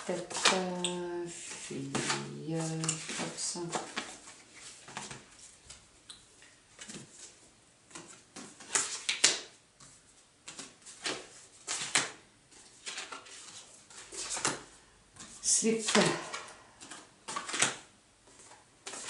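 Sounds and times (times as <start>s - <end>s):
paper rustling: 1.4s - 5.8s, 6.8s - 19.0s
cards tapping and slapping: 7.9s - 19.0s.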